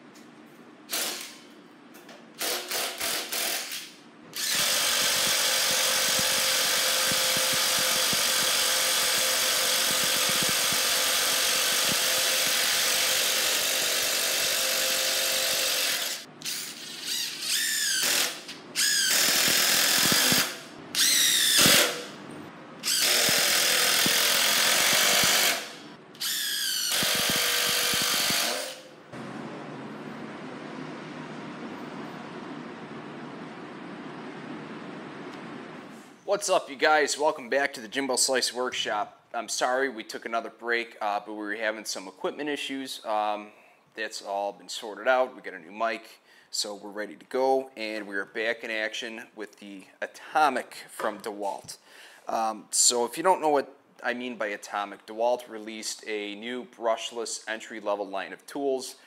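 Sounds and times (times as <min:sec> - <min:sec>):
impact driver hammering screws: 0:04.4 - 0:16.8, 0:17.8 - 0:22.0, 0:22.8 - 0:28.8.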